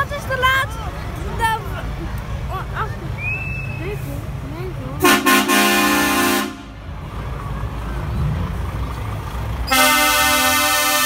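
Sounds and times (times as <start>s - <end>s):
truck engines rumbling: 0.0s - 11.0s
truck horn blasts: 5.0s - 6.8s, 9.7s - 11.0s.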